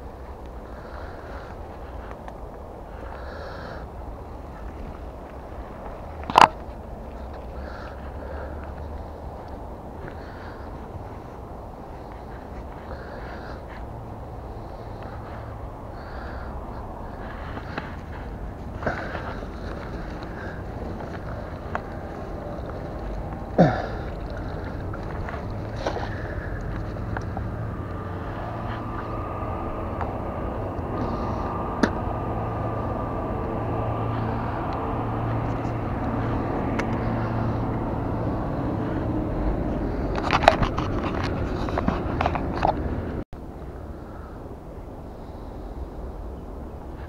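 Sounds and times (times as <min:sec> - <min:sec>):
low outdoor rumble: 0:00.0 - 0:47.0
camera clicks and rustles: 0:40.0 - 0:43.0.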